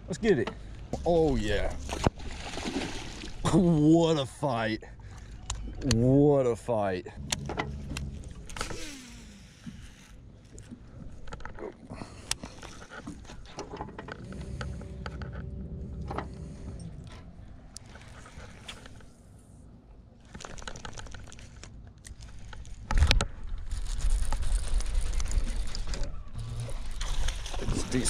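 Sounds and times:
reel and hull clicks and knocks: 7.2 - 19.1, 20.2 - 28.0.

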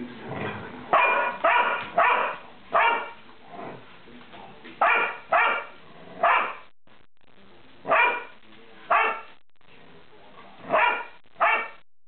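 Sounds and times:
dogs barking: 0.9 - 3.2, 4.8 - 6.7, 7.9 - 8.3, 8.9 - 9.3, 10.6 - 11.8.

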